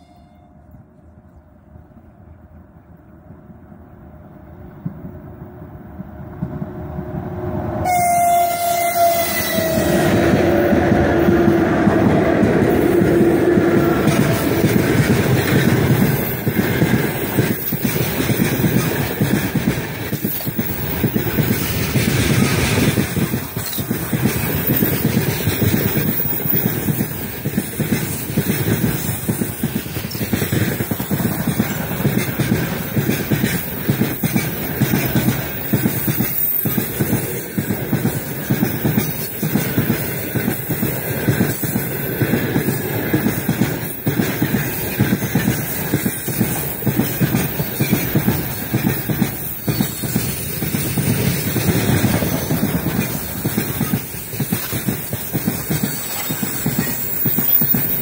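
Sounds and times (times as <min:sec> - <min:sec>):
locomotive horn: 0:00.0 - 0:00.7, 0:07.8 - 0:10.6
freight wagons rolling past: 0:09.0 - 0:58.0.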